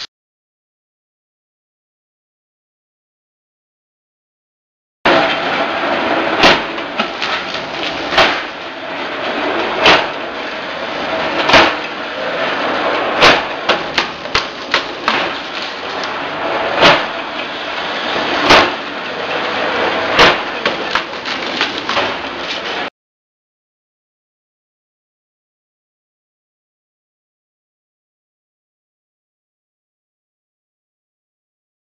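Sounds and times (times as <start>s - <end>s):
bamboo cutting machine running: 5.1s - 22.9s.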